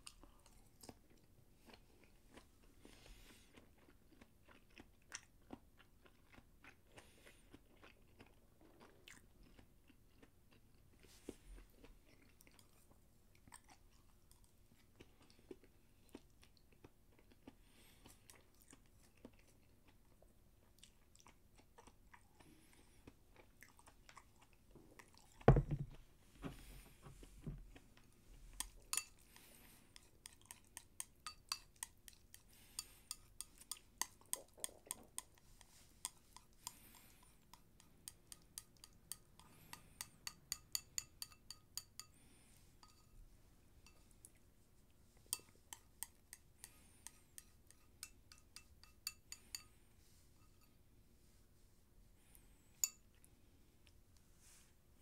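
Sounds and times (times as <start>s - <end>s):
chewing mouth sounds: 0.0s - 25.5s, 27.7s - 40.4s
chopsticks tapping ceramic bowl: 28.6s - 29.2s, 38.0s - 42.1s, 42.8s - 43.1s.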